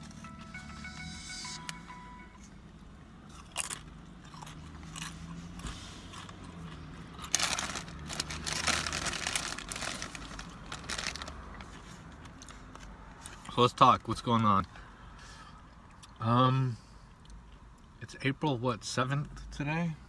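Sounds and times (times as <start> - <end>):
chip crunching: 3.3 - 11.4.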